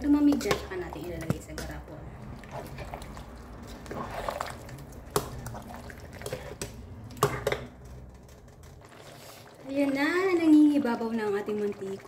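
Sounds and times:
sauce bubbling in hot oil: 8.7 - 12.0.

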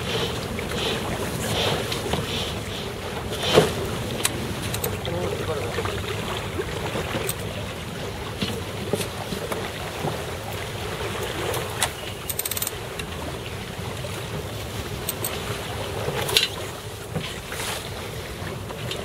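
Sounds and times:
water rushing past hull: 0.0 - 19.0
deck gear clicks: 4.2 - 5.0.

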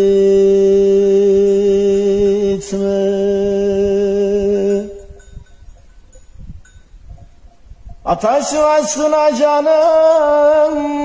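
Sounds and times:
man singing a long note: 0.0 - 5.2, 8.0 - 11.0.

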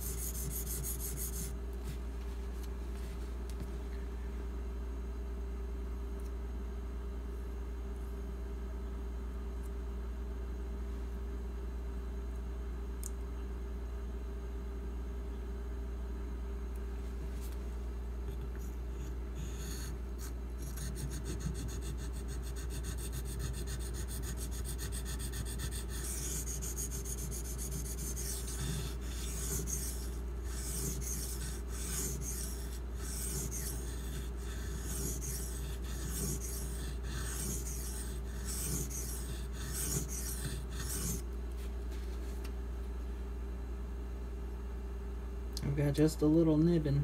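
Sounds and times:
knife blade scraping on whetstone: 20.6 - 41.2.

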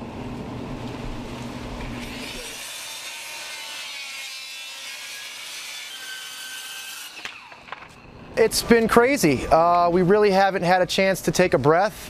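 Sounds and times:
circular saw cutting wood: 2.0 - 8.0.

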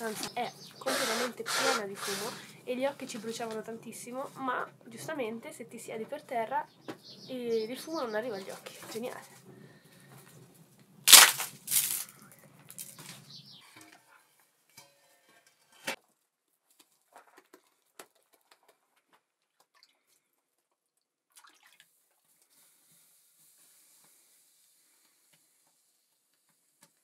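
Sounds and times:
hands slapping dough: 11.1 - 12.0.

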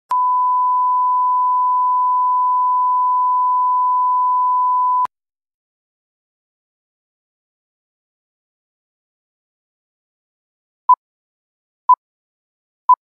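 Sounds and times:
steady test tone beep: 0.1 - 5.1.

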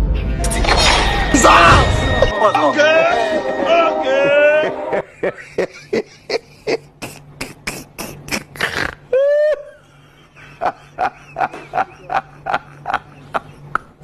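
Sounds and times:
low steady hum: 0.0 - 14.0
sharp percussive hits: 0.4 - 4.4.

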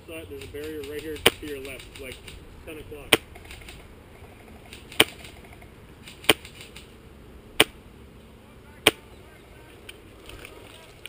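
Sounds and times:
airsoft rifle shots: 0.3 - 7.0, 7.6 - 7.8, 8.8 - 9.1.

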